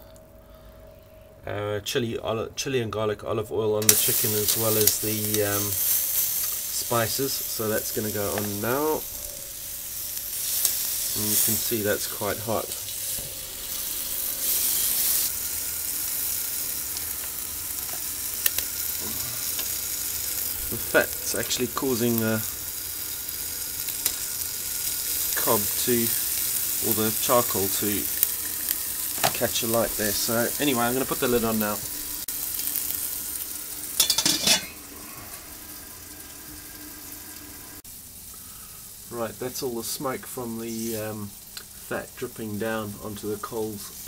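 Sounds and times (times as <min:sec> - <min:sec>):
fat dripping onto coals: 0:03.8 - 0:36.4
meat sizzling on a grill: 0:03.8 - 0:44.0
metal grill lid clattering: 0:34.0 - 0:34.8.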